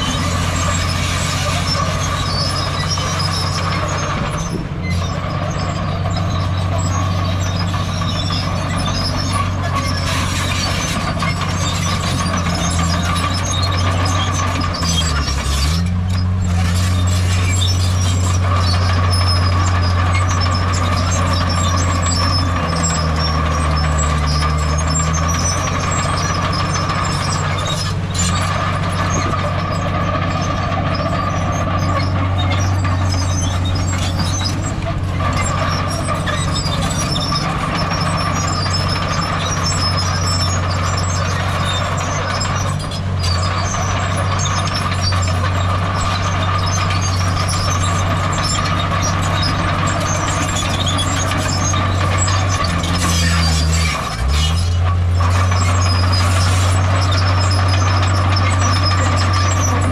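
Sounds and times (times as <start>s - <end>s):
diesel machinery engine drone: 0.0s - 59.9s.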